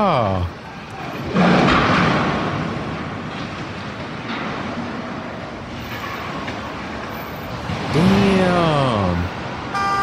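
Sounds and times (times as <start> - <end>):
traffic noise: 0.0 - 10.0
rumbling crash of crane falling: 1.0 - 8.0.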